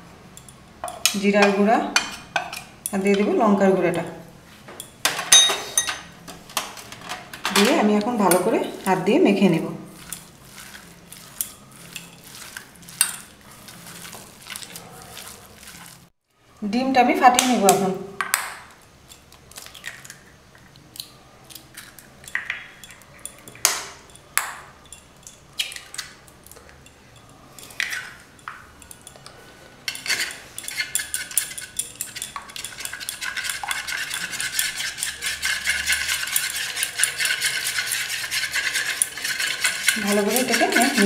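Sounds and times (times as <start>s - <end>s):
spoon beating eggs in bowl: 0.4s - 3.3s, 7.5s - 9.1s, 9.9s - 16.0s, 27.6s - 41.0s.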